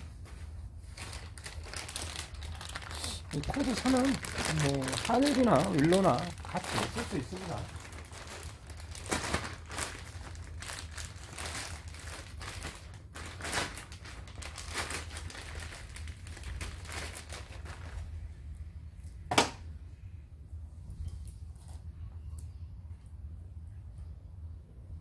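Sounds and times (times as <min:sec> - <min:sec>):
plastic bag crinkling: 0:00.2 - 0:18.3.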